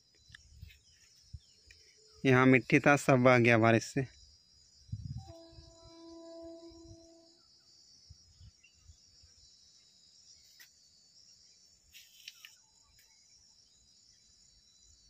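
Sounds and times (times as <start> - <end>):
short sharp insect chirps: 0.0 - 15.0
insects shrilling: 11.9 - 13.2.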